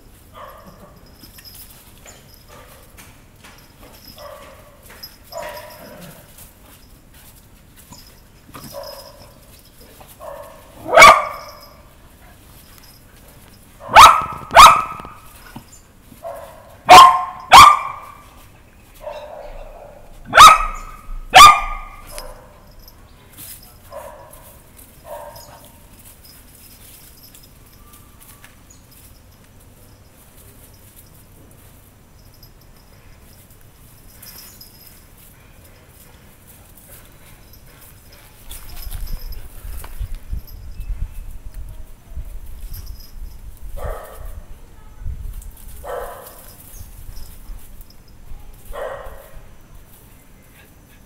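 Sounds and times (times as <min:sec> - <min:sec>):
small dogs barking: 0:00.4 - 0:01.1, 0:04.0 - 0:06.2, 0:08.6 - 0:09.4, 0:10.2 - 0:11.9, 0:13.8 - 0:15.3, 0:16.2 - 0:18.4, 0:19.0 - 0:22.8, 0:23.8 - 0:25.9, 0:43.8 - 0:44.4, 0:45.8 - 0:46.6, 0:48.6 - 0:49.5.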